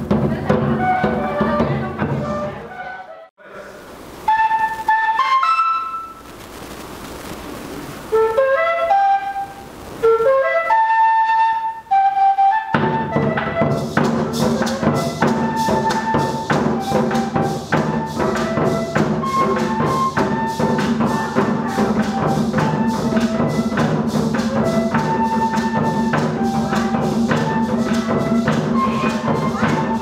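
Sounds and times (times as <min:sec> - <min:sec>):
drums: 0:00.0 - 0:02.8, 0:03.7 - 0:30.0
flute melody: 0:00.6 - 0:03.3, 0:04.2 - 0:06.3, 0:08.1 - 0:30.0
maracas shaking: 0:13.6 - 0:30.0.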